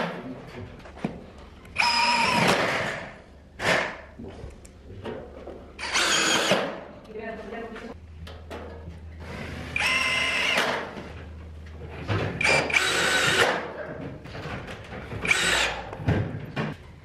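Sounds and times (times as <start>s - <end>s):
cordless drill whining: 1.8s - 2.4s, 9.8s - 10.6s, 12.4s - 13.5s, 15.2s - 15.8s.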